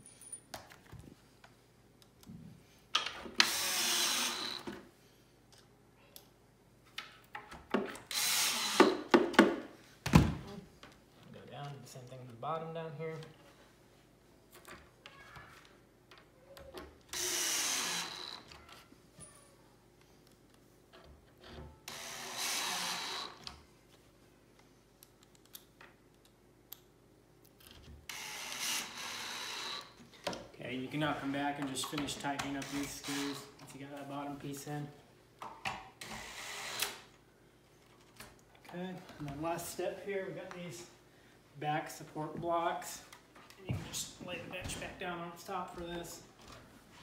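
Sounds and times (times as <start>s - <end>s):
cordless drill driving screws: 3.4s - 4.7s, 8.1s - 9.0s, 17.1s - 18.5s, 21.9s - 23.5s, 28.1s - 30.0s, 32.4s - 33.5s, 36.0s - 37.1s.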